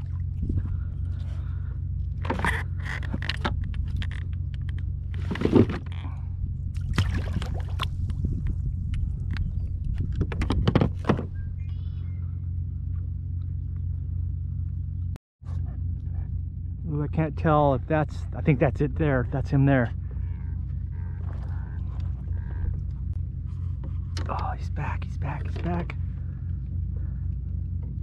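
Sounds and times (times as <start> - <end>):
low rumble: 0.0 - 28.0
water splashing: 6.7 - 8.1.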